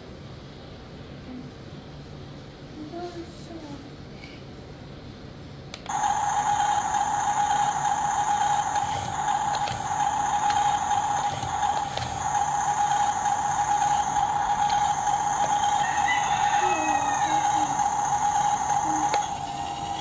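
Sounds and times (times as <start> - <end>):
small electric motor whining: 5.9 - 20.0.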